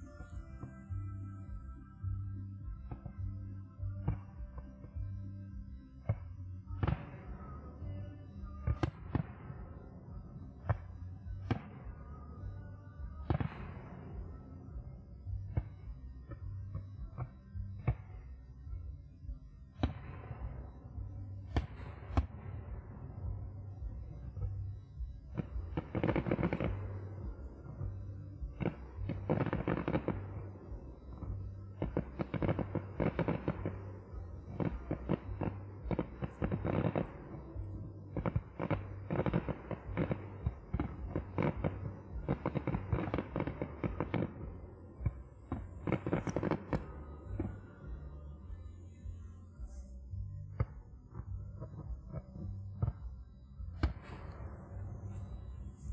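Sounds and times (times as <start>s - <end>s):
music with steady bass: 0.0s - 55.9s
firework reports: 19.2s - 55.9s
firework crackling bursts: 25.4s - 27.4s, 28.5s - 48.8s.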